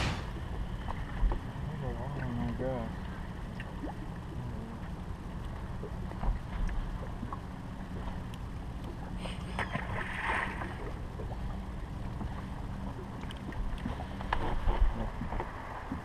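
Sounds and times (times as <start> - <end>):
brief hiss: 0.0 - 0.3
steady low hum: 0.0 - 16.0
water lapping against hull: 0.0 - 16.0.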